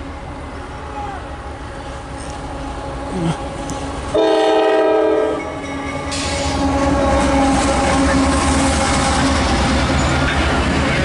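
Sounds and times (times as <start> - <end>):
locomotive passing by: 0.0 - 11.0
locomotive air horn blast: 4.1 - 5.4, 6.1 - 9.4.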